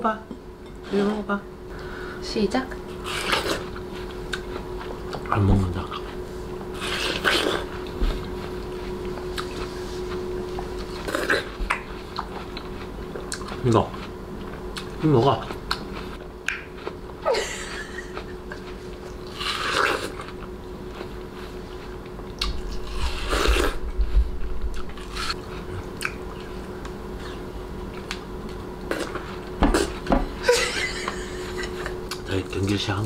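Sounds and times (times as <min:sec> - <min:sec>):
person biting watermelon: 0:03.0 - 0:03.7, 0:06.8 - 0:07.8, 0:18.6 - 0:20.4, 0:22.4 - 0:23.9, 0:24.7 - 0:26.2
person chewing: 0:03.0 - 0:06.2, 0:06.8 - 0:17.2, 0:17.9 - 0:23.8, 0:24.7 - 0:30.1, 0:32.0 - 0:32.3.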